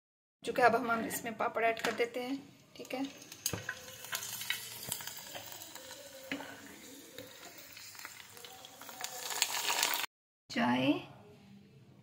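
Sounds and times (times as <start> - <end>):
papad frying in hot oil: 2.5 - 10.1.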